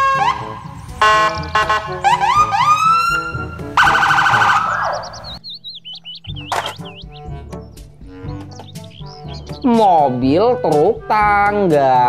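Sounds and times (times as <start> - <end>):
police siren whooping: 0.0 - 5.4
background music: 0.0 - 12.0.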